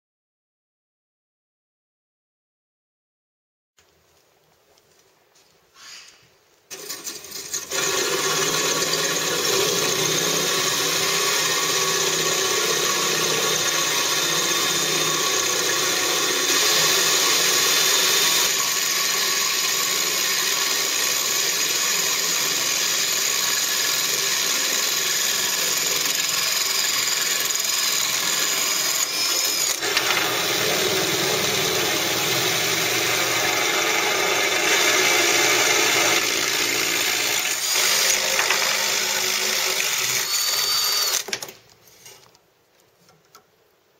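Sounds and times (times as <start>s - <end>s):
drill grinding through basin: 6.7s - 41.3s.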